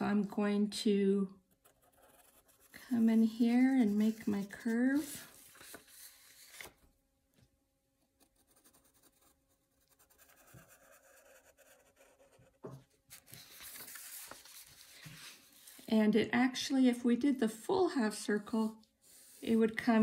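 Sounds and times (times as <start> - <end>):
pencil scratching on paper: 1.5 - 6.0, 8.2 - 13.3.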